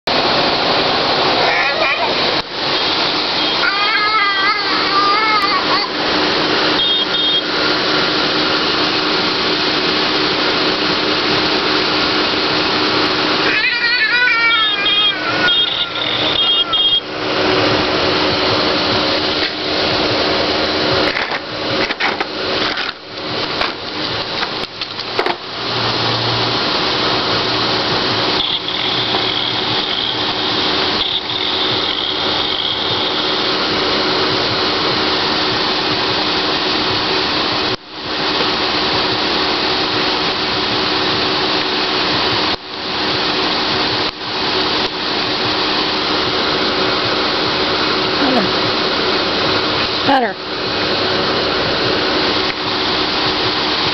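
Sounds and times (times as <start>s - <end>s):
small motor running: 10.8s - 21.8s, 26.0s - 37.8s.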